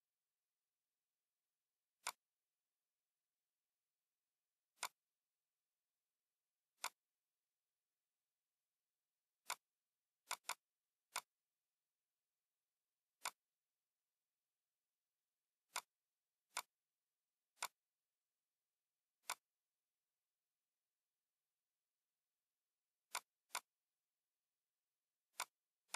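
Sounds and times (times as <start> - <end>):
computer mouse clicks: 2.0 - 2.3, 4.7 - 5.1, 6.8 - 7.0, 9.4 - 11.4, 13.1 - 13.5, 15.6 - 16.8, 17.5 - 17.8, 19.2 - 19.6, 23.1 - 23.8, 25.3 - 25.9.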